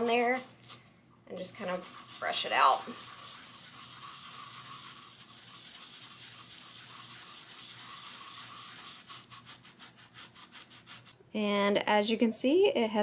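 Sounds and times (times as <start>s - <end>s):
brush scrubbing carpet: 1.5s - 11.1s.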